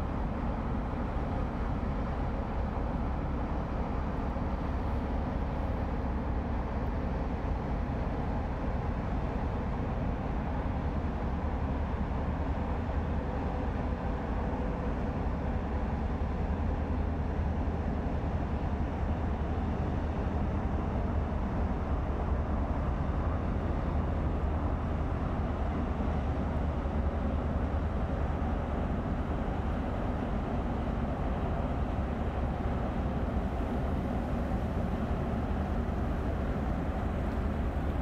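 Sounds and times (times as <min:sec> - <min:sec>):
ship diesel engines droning: 0:20.8 - 0:38.0.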